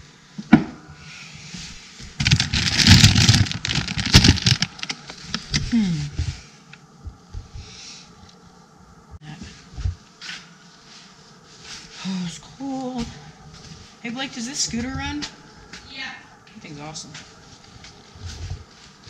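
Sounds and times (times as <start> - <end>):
plastic bag crinkling: 2.2 - 5.6.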